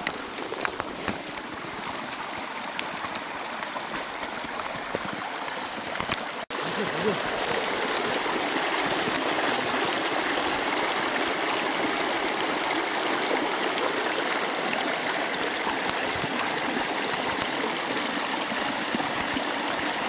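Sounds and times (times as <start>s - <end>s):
stream water flowing: 0.0s - 20.0s.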